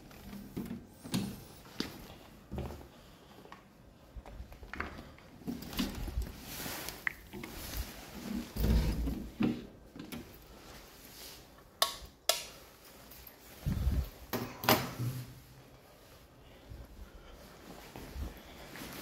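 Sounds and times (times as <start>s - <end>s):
wall light switch clicks: 11.8s - 12.5s.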